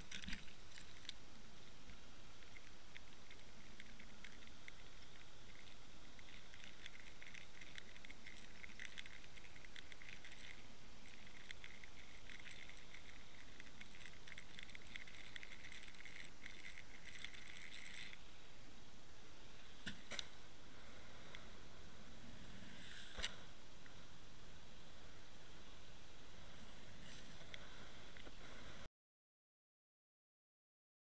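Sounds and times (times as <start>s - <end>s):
underwater crackling and ticking: 0.0s - 18.3s.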